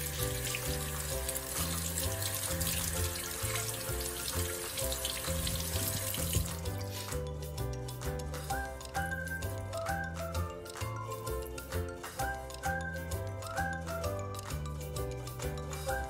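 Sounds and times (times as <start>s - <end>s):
tap water running into basin: 0.0s - 9.0s
music with steady bass line: 0.0s - 16.0s.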